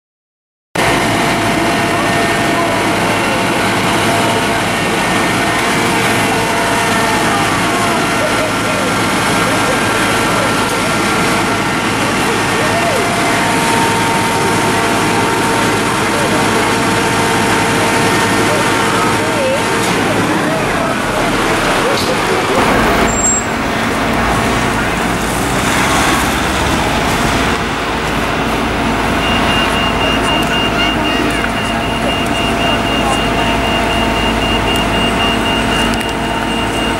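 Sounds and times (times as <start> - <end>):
diesel engine droning: 0.8 - 36.9
faint voices: 0.8 - 36.9
rapid high beeping: 28.4 - 36.9.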